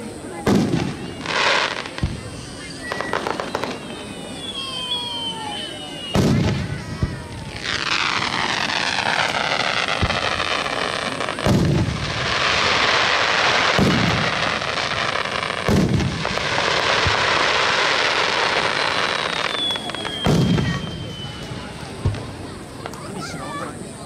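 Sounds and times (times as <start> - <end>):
steady hiss: 0.0 - 24.0
firework shells bursting: 6.0 - 22.3.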